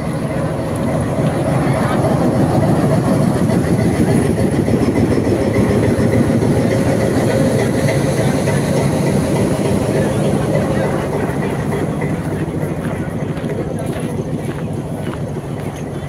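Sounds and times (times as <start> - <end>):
diesel locomotive idling: 0.0 - 16.0.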